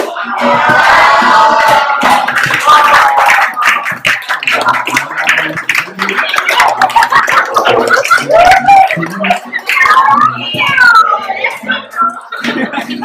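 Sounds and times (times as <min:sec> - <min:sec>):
voices shouting: 0:00.0 - 0:03.6
group clapping and cheering: 0:00.0 - 0:13.0.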